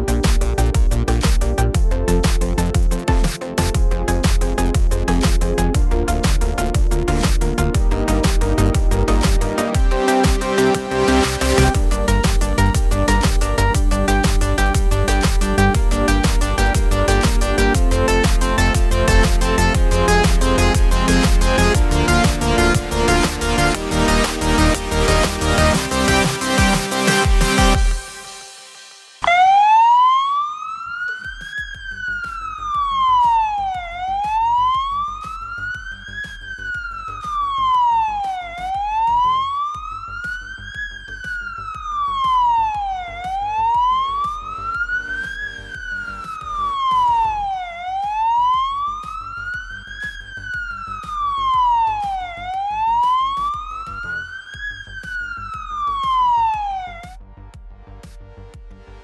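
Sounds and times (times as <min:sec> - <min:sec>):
electronic music beat: 0:00.0 - 0:59.0
fire engine siren wailing: 0:29.2 - 0:57.2.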